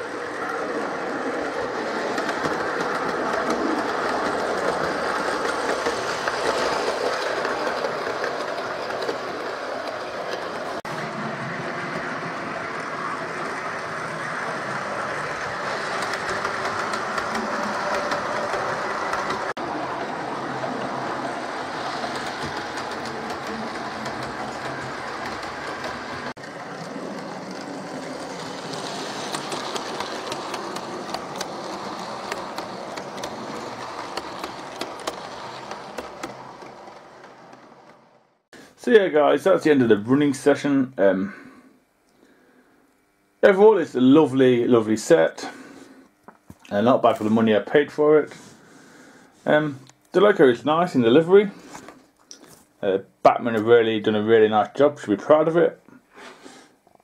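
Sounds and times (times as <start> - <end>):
wheels clicking over rail joints: 0.0 - 11.0, 12.0 - 38.4
model train motor whirring: 0.0 - 38.4.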